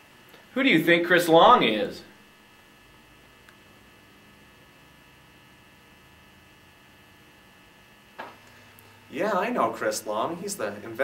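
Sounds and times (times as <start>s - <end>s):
faint electrical hum with hiss: 0.0s - 11.0s.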